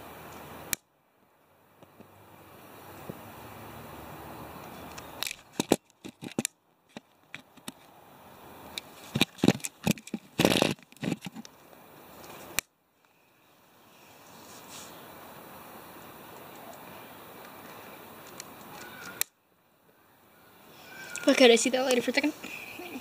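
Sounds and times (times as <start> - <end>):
sharp clicks and knocks: 4.9 - 7.9, 9.1 - 11.5.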